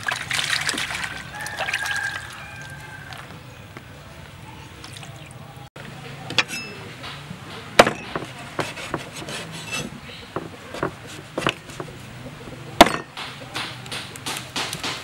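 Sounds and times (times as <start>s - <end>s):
cleaver chopping on wooden board: 7.0s - 12.0s, 12.8s - 15.0s.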